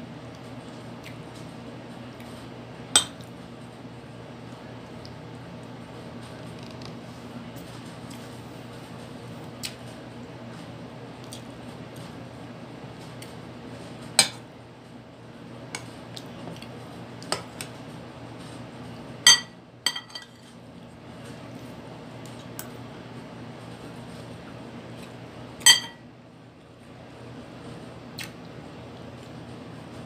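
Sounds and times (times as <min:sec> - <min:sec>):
steady low hum: 0:00.0 - 0:30.0
metal spoon clinking on ceramic: 0:19.3 - 0:20.4, 0:25.7 - 0:26.0.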